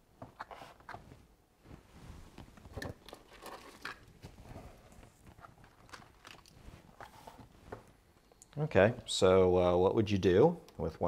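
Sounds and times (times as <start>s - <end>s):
plastic packaging crinkling: 5.3s - 7.1s.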